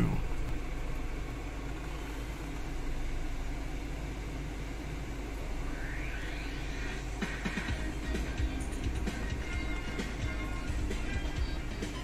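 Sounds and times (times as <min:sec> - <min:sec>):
car cabin rumble and hiss: 0:00.0 - 0:05.6.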